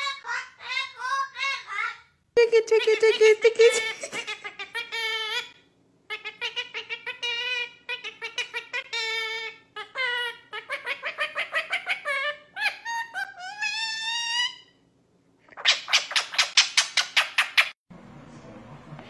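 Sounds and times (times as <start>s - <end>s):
parrot making laugh-like notes: 0.0s - 5.5s
room hum: 0.0s - 19.0s
woman laughing: 2.4s - 4.6s.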